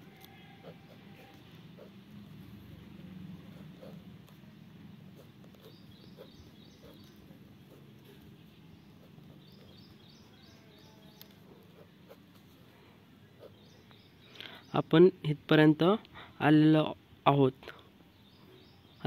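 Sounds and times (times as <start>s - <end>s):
small bird chirping: 5.1s - 12.2s, 13.2s - 14.9s, 18.1s - 19.0s.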